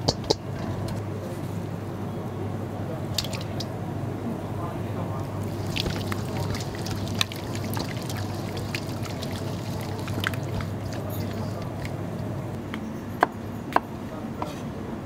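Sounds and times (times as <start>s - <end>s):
background hum: 2.9s - 13.7s
wet squishing of fish in marinade: 5.4s - 12.4s.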